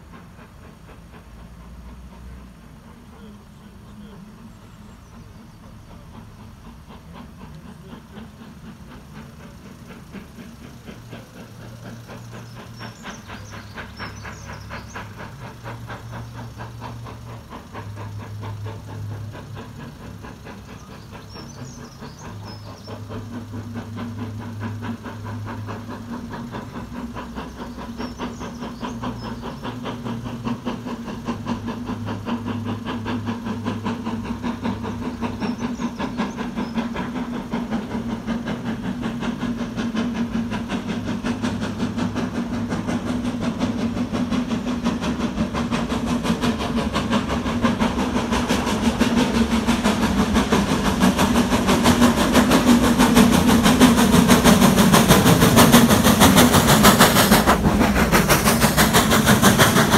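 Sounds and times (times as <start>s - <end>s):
steam locomotive exhaust beats: 0.0s - 59.9s.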